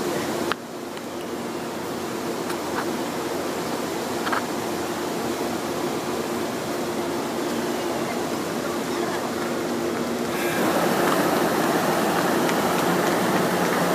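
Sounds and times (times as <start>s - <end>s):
train equipment hum and whir: 0.0s - 13.9s.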